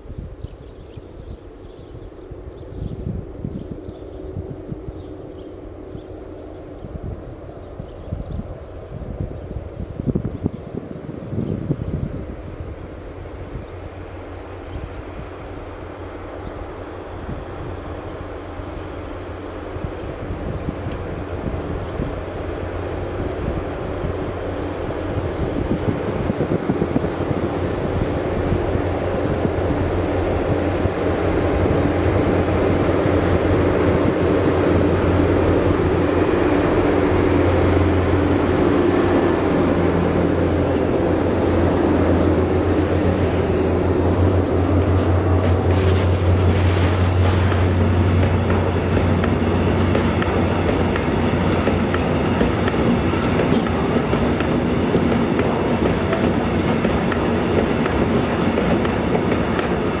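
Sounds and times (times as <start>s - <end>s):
diesel locomotive engine drone: 0.0s - 60.0s
train wagons clattering on rails: 28.6s - 60.0s.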